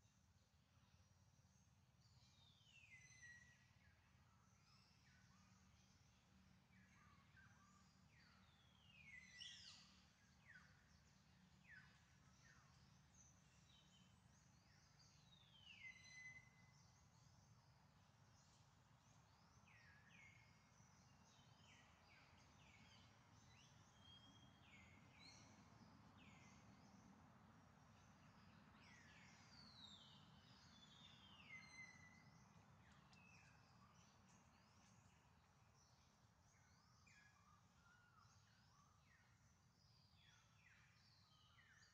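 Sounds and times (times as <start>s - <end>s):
whistled bird calls: 30.7s - 32.3s.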